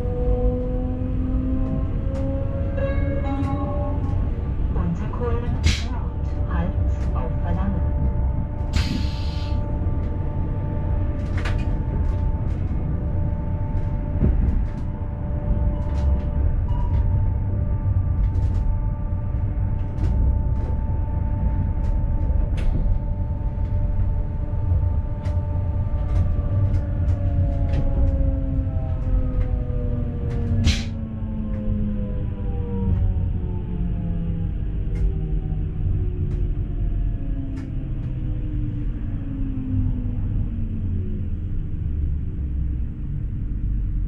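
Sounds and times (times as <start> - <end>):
train running gear rumble: 0.0 - 44.0.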